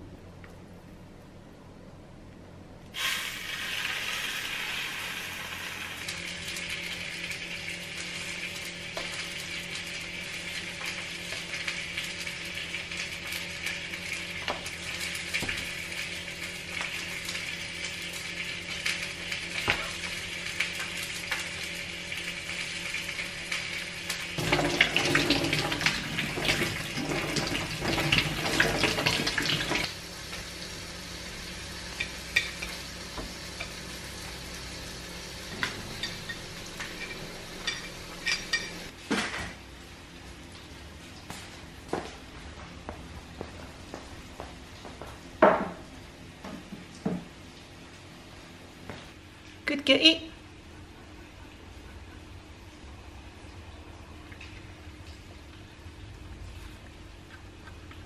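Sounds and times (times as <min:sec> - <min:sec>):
fish fillet sizzling in a pan: 0:03.0 - 0:24.4, 0:29.4 - 0:38.9.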